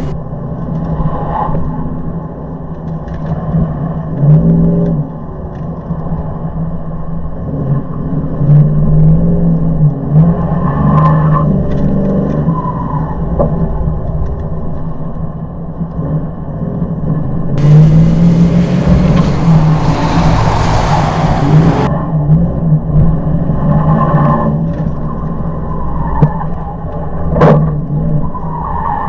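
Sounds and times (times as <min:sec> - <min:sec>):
engine revving and slowing: 0:17.6 - 0:21.9.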